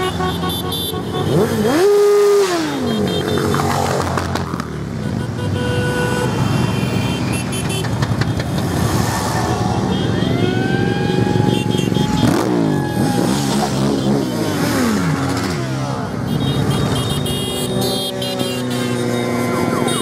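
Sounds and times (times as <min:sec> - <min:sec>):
horn toot: 0:00.0 - 0:03.6, 0:09.4 - 0:20.0
motorcycle engine revving: 0:00.0 - 0:04.8.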